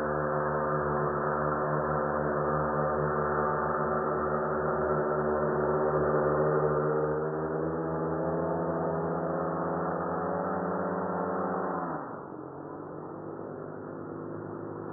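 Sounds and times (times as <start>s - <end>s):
propeller motors running: 0.0s - 11.6s.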